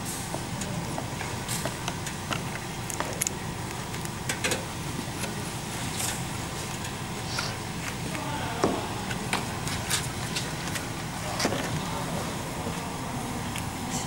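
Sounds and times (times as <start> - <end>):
machine hum: 0.0 - 14.0
panels clicking and scraping: 3.9 - 12.3.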